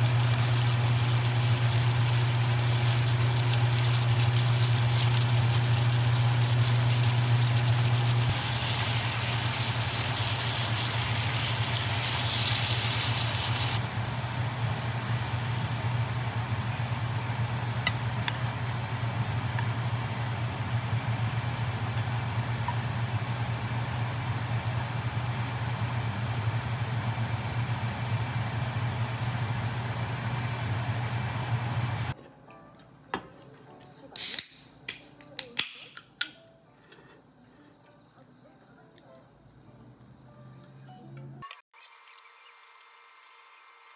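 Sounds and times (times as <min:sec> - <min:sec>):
food sizzling in a frying pan: 0:00.0 - 0:19.2
steady low hum: 0:04.6 - 0:32.2.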